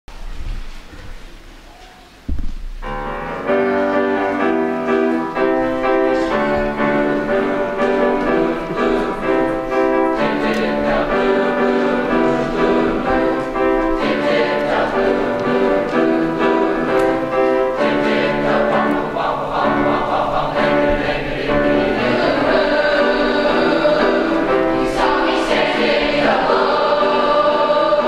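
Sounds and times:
piano accompaniment: 0.2s - 28.0s
low thump: 2.3s - 3.0s
boys' choir singing: 5.3s - 28.0s.

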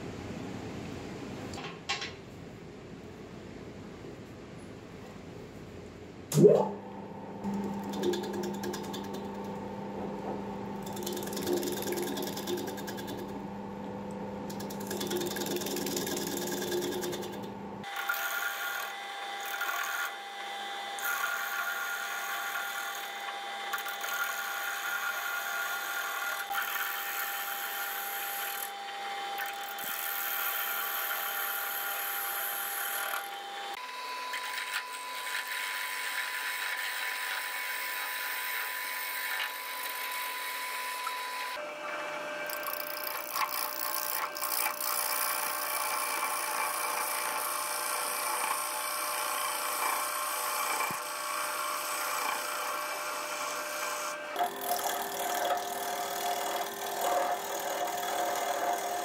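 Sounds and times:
wood lathe motor hum: 6.8s - 59.0s
gouge cutting wood: 10.0s - 13.3s, 34.3s - 40.2s, 42.4s - 59.0s.

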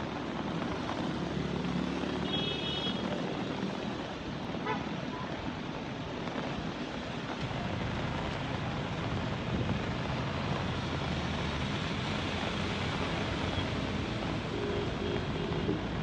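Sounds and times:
fast-flowing floodwater: 0.0s - 16.0s
wind: 0.0s - 16.0s.

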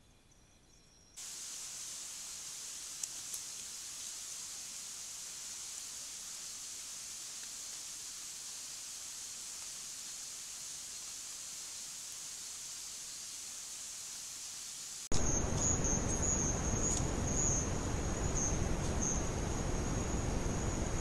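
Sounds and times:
high-pitched hiss: 0.0s - 21.0s
faint clicks: 2.9s - 4.2s.

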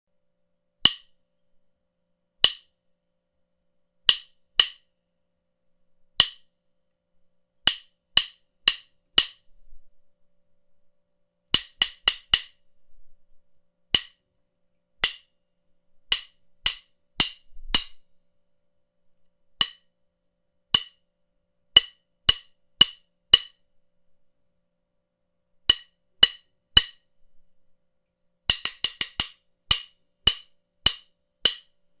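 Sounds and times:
drumsticks clacking together: 2.4s - 2.7s, 7.7s - 9.4s, 13.9s - 14.2s, 15.0s - 15.3s, 16.1s - 18.0s, 19.6s - 19.9s, 28.5s - 31.8s.

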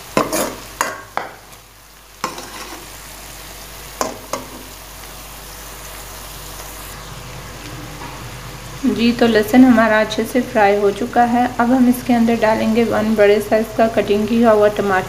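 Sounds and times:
onions sizzling in hot oil: 0.0s - 15.0s
steel spoon scraping a pan: 0.1s - 1.4s, 2.2s - 3.0s.

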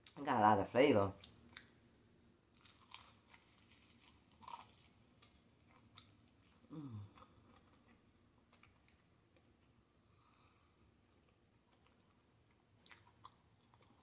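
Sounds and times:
crunchy chewing: 2.5s - 9.5s, 11.1s - 14.0s
person humming mm: 6.7s - 7.2s.

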